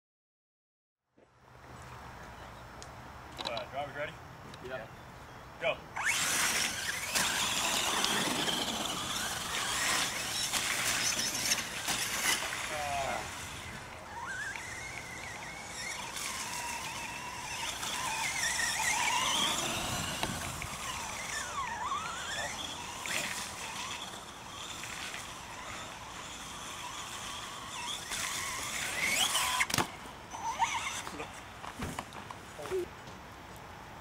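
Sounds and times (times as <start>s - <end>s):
electric motors whining: 5.9s - 31.8s.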